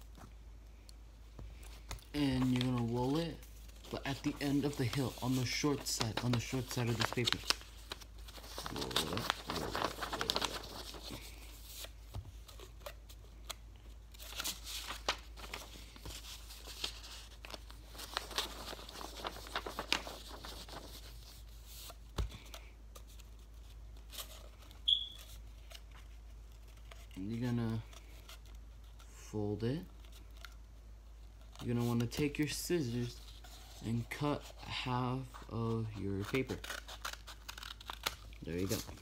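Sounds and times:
paper rustling and crinkling: 1.4s - 30.6s, 31.3s - 39.0s
short high squeak: 24.9s - 25.2s.

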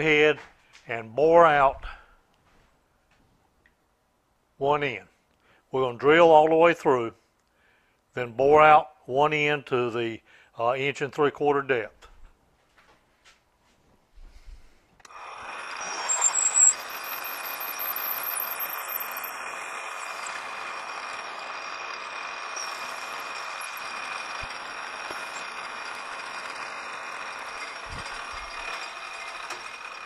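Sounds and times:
metal lathe drilling whir: 15.0s - 30.0s.

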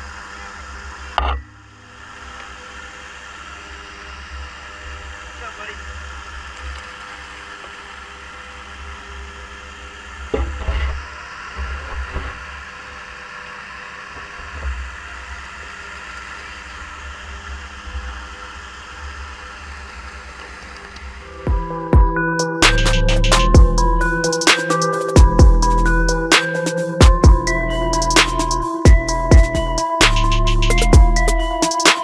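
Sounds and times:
steady mechanical hum: 0.0s - 32.0s.

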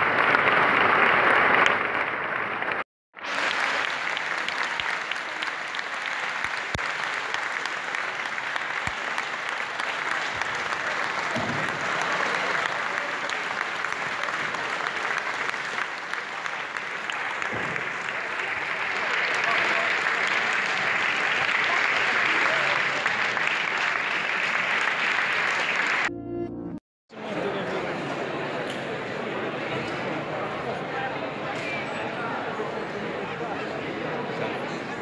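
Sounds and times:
audience applauding: 0.0s - 26.1s.

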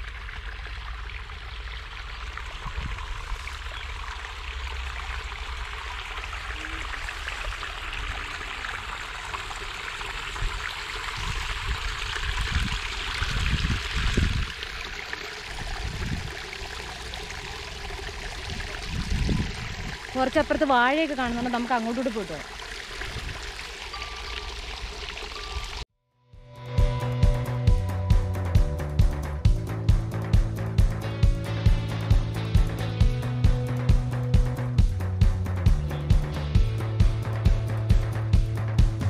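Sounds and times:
water rushing along a channel: 0.0s - 25.8s.

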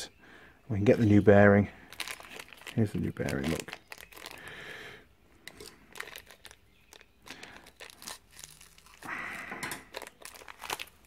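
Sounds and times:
packaging crinkling and rustling: 1.8s - 4.6s, 5.4s - 11.0s.

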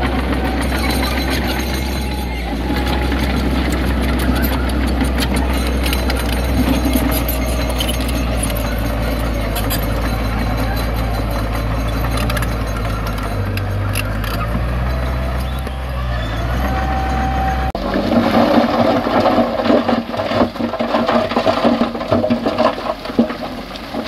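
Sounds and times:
clanks and rattles: 0.0s - 24.0s
heavy diesel engine running: 0.0s - 24.0s.

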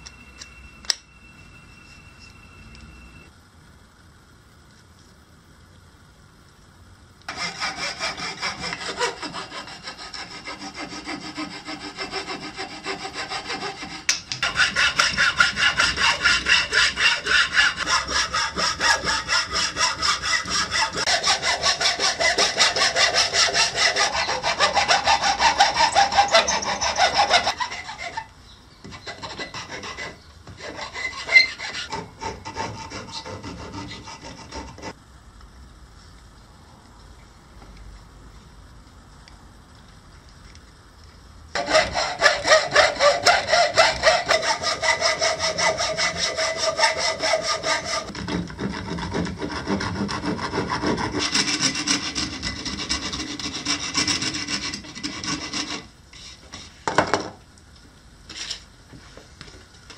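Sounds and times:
file rasping wood: 7.3s - 28.3s, 28.9s - 35.0s, 41.6s - 56.6s
hand saw cutting wood: 7.3s - 28.3s, 28.9s - 35.0s, 41.6s - 56.4s.

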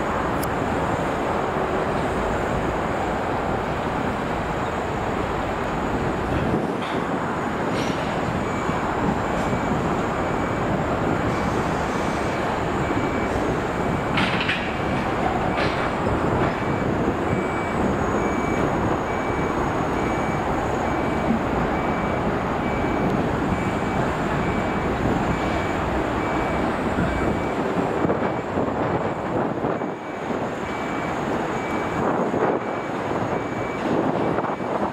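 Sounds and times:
heavy traffic rumble: 0.0s - 34.9s
reversing beeper: 8.2s - 14.3s, 15.5s - 27.6s, 29.7s - 34.8s.

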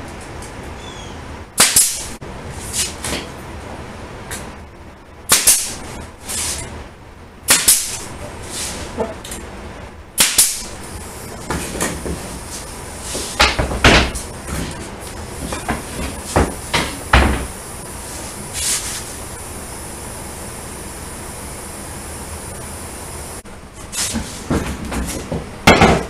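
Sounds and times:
nail gun shots into wood: 1.6s - 2.0s, 5.3s - 5.8s, 7.5s - 8.0s, 10.2s - 10.6s.

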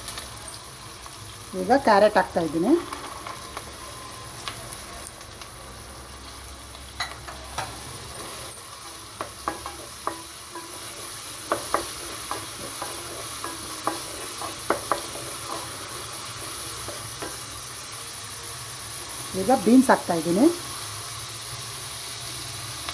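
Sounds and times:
vegetables sizzling in oil: 0.0s - 22.9s
wooden spatula scraping metal pot: 8.1s - 17.4s.

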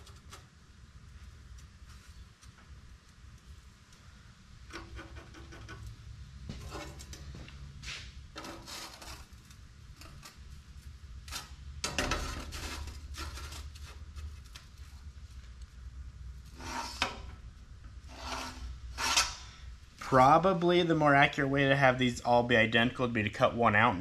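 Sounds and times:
metal bar scraping on plate: 8.4s - 9.4s, 11.2s - 14.1s, 16.5s - 17.3s, 18.0s - 19.5s.

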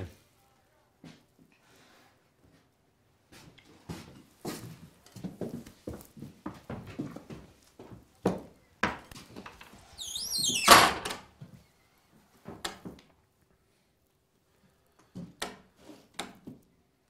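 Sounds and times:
footsteps on wooden floor: 3.3s - 9.8s
door hinge squeak: 9.9s - 11.0s.

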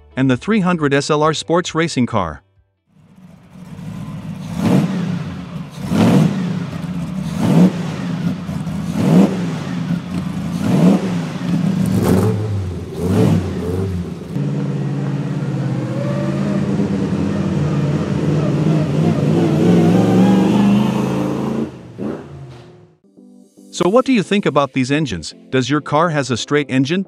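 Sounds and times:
racing car engine revving: 3.0s - 23.0s.

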